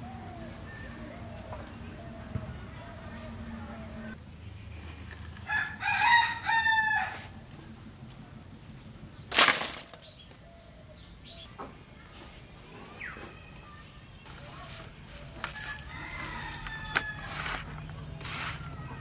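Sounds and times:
rooster crowing: 5.4 - 7.4, 15.4 - 19.0.

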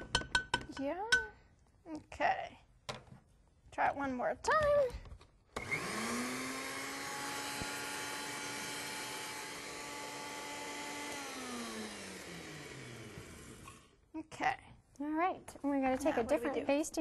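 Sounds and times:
blender motor running: 5.6 - 13.9.

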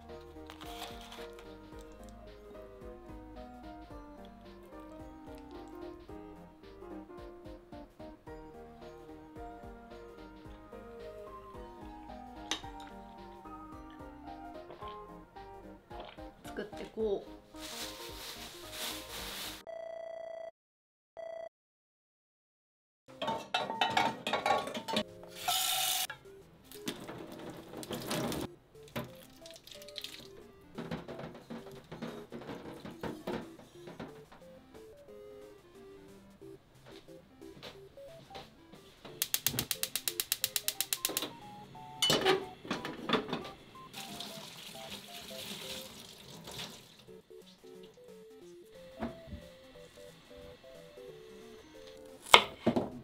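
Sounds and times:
background music with stepped notes: 0.0 - 19.6, 24.9 - 46.0, 46.9 - 53.0
kitchen clatter: 23.1 - 26.2, 26.8 - 28.5, 30.8 - 34.2, 42.0 - 43.6
water poured onto soil: 29.1 - 30.3
gas burner hissing: 39.2 - 41.3
gas igniter clicking rapidly: 39.2 - 41.3.

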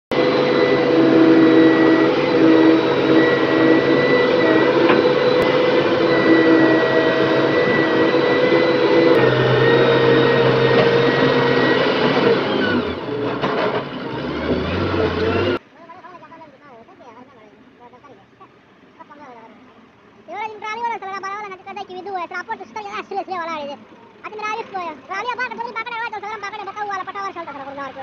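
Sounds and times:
excavator diesel engine under load: 0.1 - 15.6, 21.4 - 28.0
high whine: 0.1 - 15.6.

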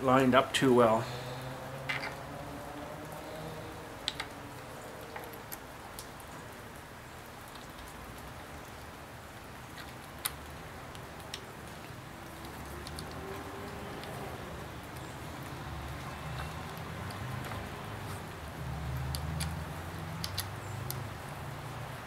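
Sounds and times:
rain hiss: 0.0 - 22.0
small parts clicking: 4.0 - 4.4, 12.3 - 13.4, 20.2 - 21.1.

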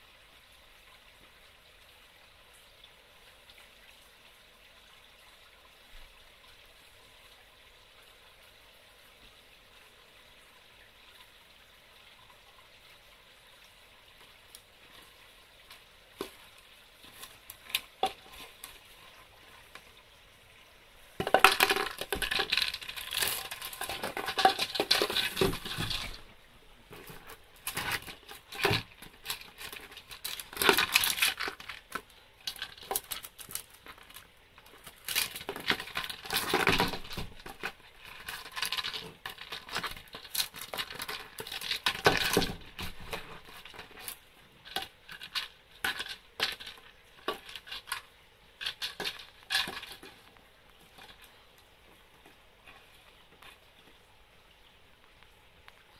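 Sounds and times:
plastic tub clattering on paving: 21.2 - 26.3, 26.9 - 51.4.

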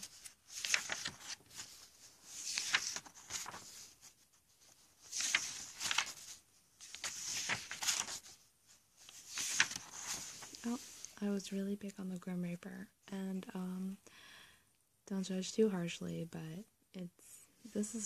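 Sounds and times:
notebook pages turning: 0.0 - 8.4, 9.0 - 11.1.

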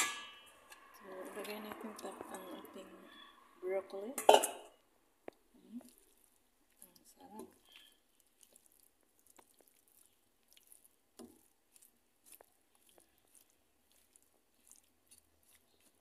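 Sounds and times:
stir fry crackling in pan: 7.0 - 16.0.

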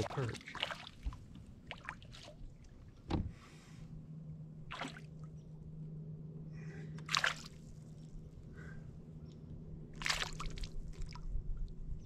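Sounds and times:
small water splashes: 0.0 - 2.9, 4.7 - 5.4, 7.0 - 8.1, 9.9 - 11.8
faint steady hum: 0.0 - 12.0.

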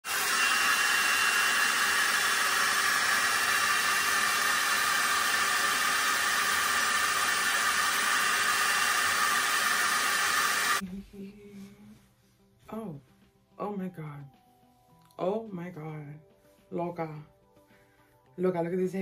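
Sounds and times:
hair dryer blowing: 0.0 - 10.8.

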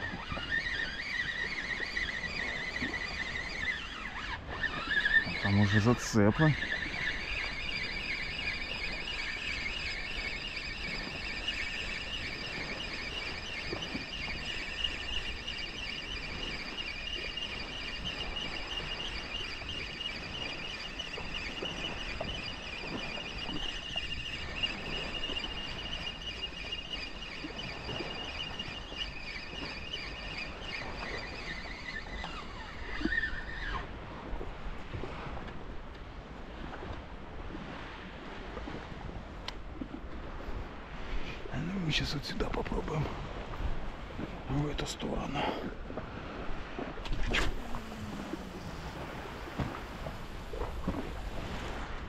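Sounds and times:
fishing reel whining: 0.0 - 34.0, 46.4 - 52.0.

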